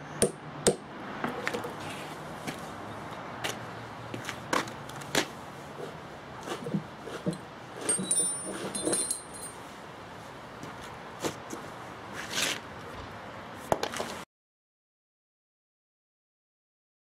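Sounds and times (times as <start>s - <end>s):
steel wedges clinking on stone: 7.3s - 9.6s.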